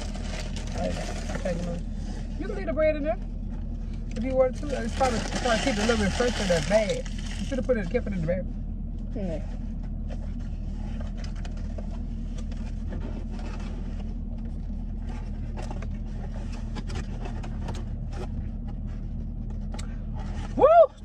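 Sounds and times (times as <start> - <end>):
takeout containers rustling: 0.0 - 1.8, 4.7 - 7.7
car engine idling: 0.0 - 21.0.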